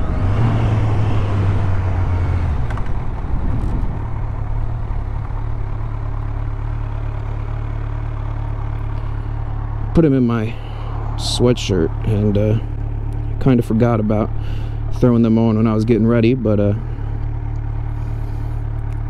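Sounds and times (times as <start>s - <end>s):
wind rush: 0.0s - 5.2s
motorcycle engine idling: 2.5s - 19.0s.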